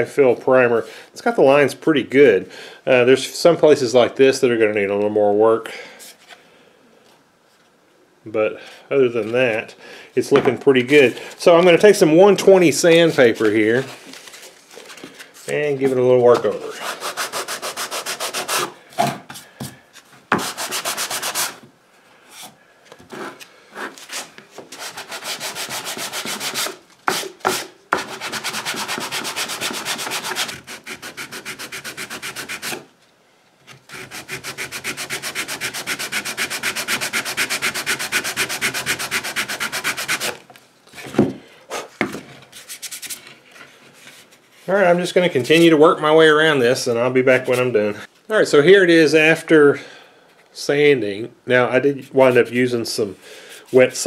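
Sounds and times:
sandpaper rubbing back and forth: 16.4s - 18.8s, 20.3s - 21.6s, 23.1s - 32.9s, 33.9s - 40.4s.

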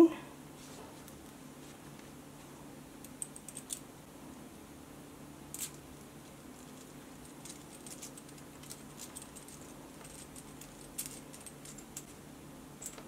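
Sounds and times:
faint low hum: 0.0s - 13.0s
metal shackle clicking and clinking: 3.0s - 3.9s, 6.6s - 12.2s, 12.8s - 13.0s.

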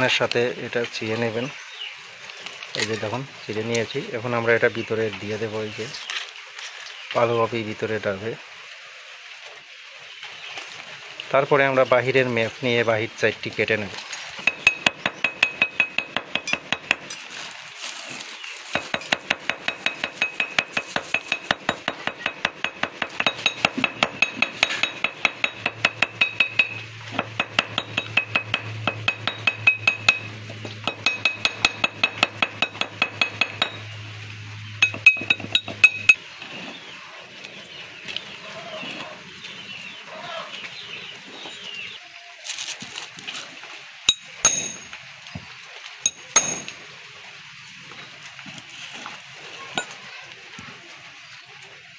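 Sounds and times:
small hammer tapping metallically: 14.4s - 17.2s, 18.8s - 34.0s, 34.8s - 36.2s, 44.1s - 45.0s, 46.1s - 46.8s.

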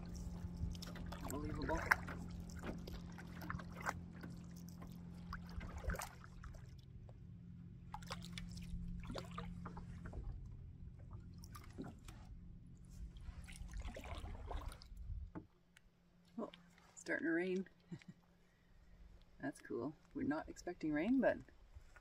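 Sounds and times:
distant motorboat engine droning: 0.0s - 13.4s.

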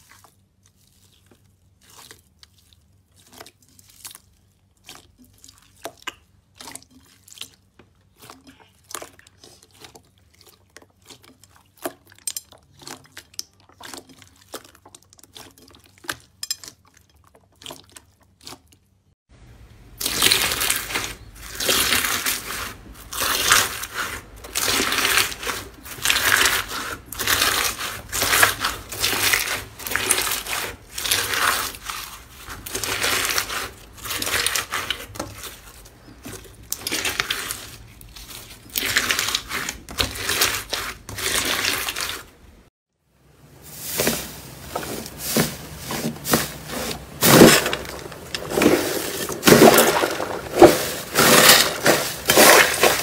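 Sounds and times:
crunchy slime crunching: 0.0s - 19.0s, 19.8s - 42.6s, 43.7s - 53.0s
slime squishing with wet clicks: 0.0s - 19.1s.

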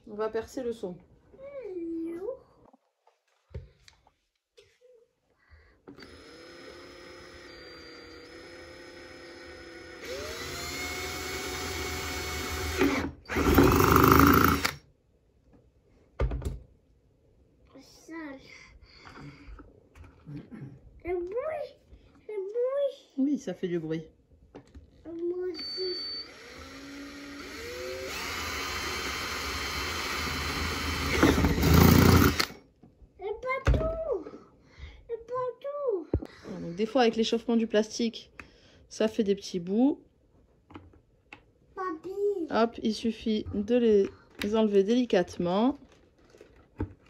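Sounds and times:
power drill boring plastic: 6.0s - 14.8s, 25.6s - 32.6s.

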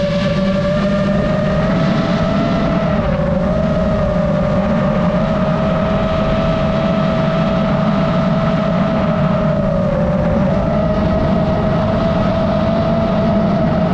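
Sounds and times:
drone propellers whining: 0.0s - 13.9s
low rushing noise: 0.0s - 13.9s.

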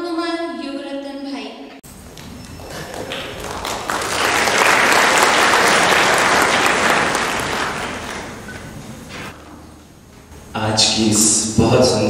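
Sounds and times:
audience applauding: 2.0s - 9.3s.

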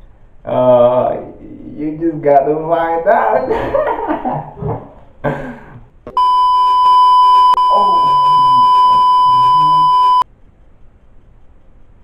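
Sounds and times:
person speaking: 0.5s - 5.0s, 7.6s - 10.2s
censor bleep tone: 6.1s - 10.2s.

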